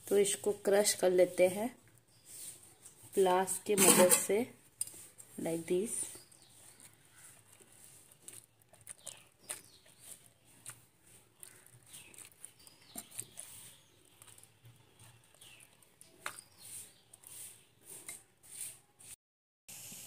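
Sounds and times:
faint squishing of crushed vegetables: 0.0s - 19.2s.

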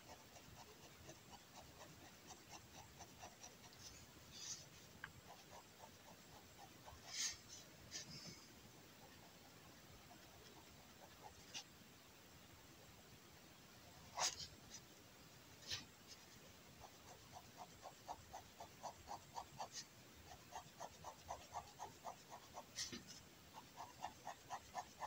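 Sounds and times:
pen scratching on paper: 0.0s - 11.7s, 14.1s - 14.8s, 15.6s - 25.0s.

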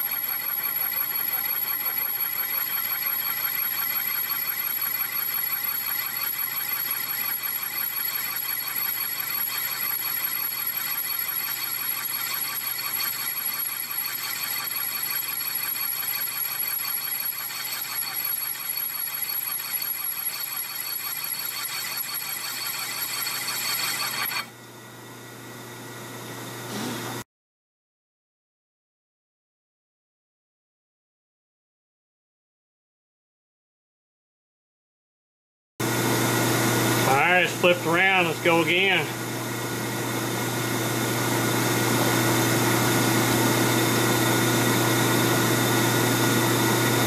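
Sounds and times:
metal lathe ringing whine: 0.0s - 24.6s, 36.3s - 47.0s.

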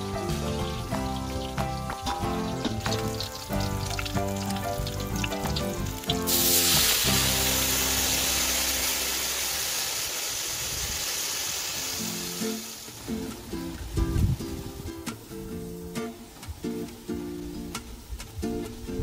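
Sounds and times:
plucked guitar music: 0.0s - 10.4s, 11.7s - 19.0s
liquid sizzling in a hot wok: 0.5s - 13.3s.

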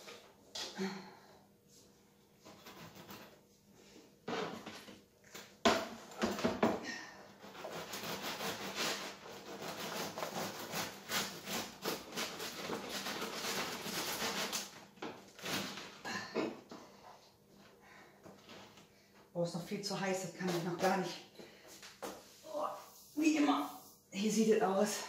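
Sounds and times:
bread knife sawing crust: 7.4s - 14.7s.

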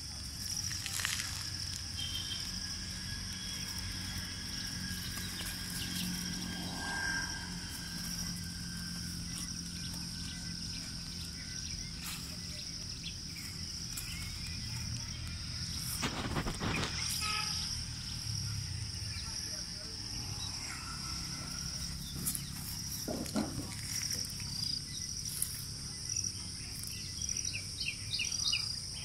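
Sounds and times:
insects droning: 0.0s - 29.0s.

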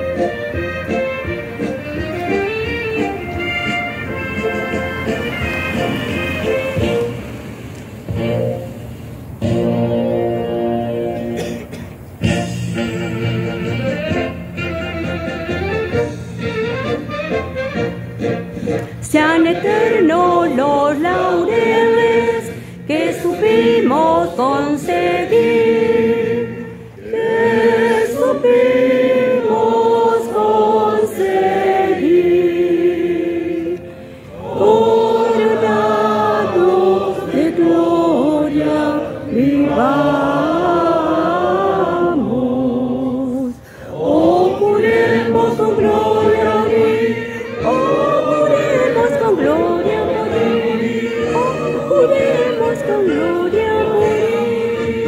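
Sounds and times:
choir singing: 19.0s - 55.0s.

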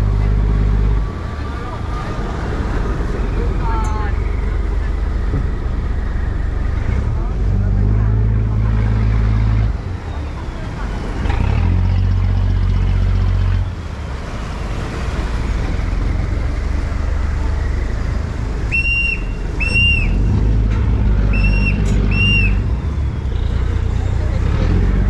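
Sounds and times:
boat engine running: 0.0s - 25.0s
shrill whistle blasts: 18.7s - 20.3s, 21.3s - 23.6s.

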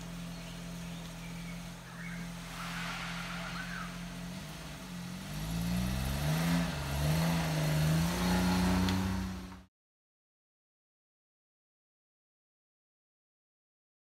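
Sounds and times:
car engine idling and revving: 0.0s - 9.7s.

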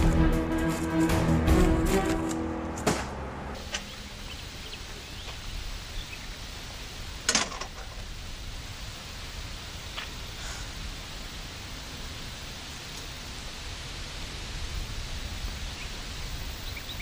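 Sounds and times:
background music: 0.0s - 3.6s
low outdoor hiss: 3.6s - 17.0s.

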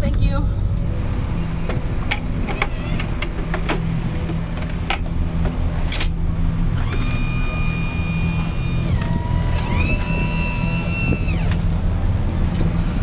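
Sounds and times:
metal clicks and clanks: 2.0s - 6.2s.

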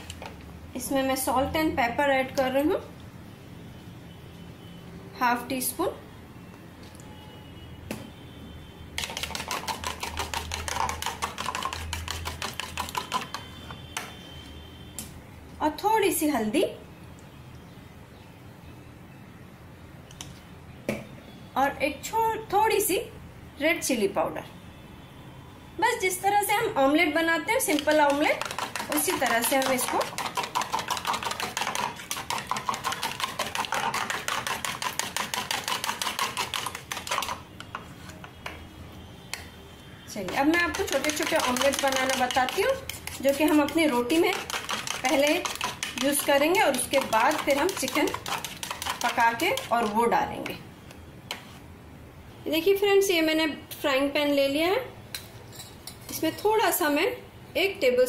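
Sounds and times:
whisk clicking against bowl: 9.0s - 13.5s, 27.5s - 37.4s, 40.2s - 50.6s
eggs beaten with metal utensil: 9.0s - 14.1s, 27.5s - 37.8s, 40.2s - 50.5s.

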